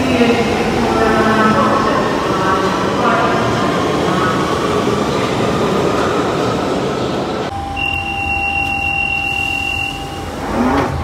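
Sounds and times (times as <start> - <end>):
underground train rumble and rattle: 0.0 - 7.8
two-note electronic tone: 7.5 - 10.8.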